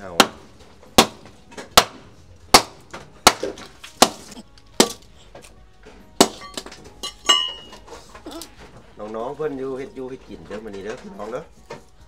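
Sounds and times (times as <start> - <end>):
knife chopping firewood: 0.0 - 5.6, 6.2 - 6.9.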